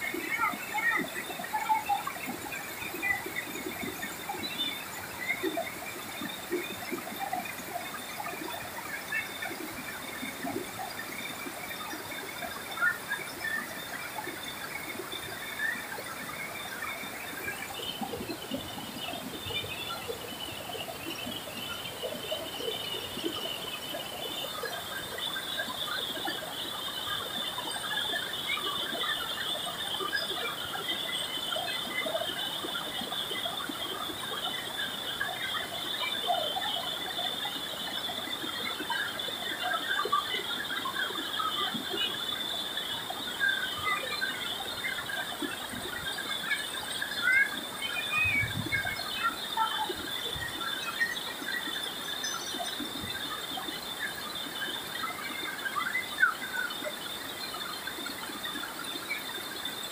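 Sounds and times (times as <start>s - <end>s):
river rapids rushing over rocks: 0.0s - 52.0s.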